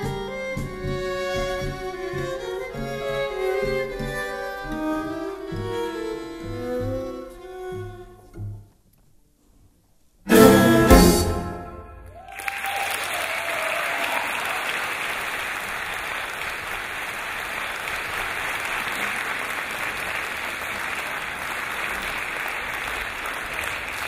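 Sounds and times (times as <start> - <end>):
string ensemble chord: 10.3 - 12.1
audience applause: 12.0 - 24.0.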